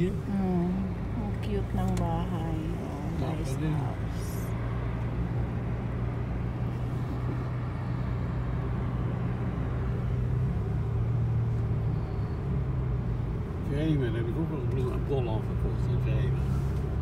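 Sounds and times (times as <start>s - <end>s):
car engine hum: 0.0s - 17.0s
road and tyre noise: 0.0s - 17.0s.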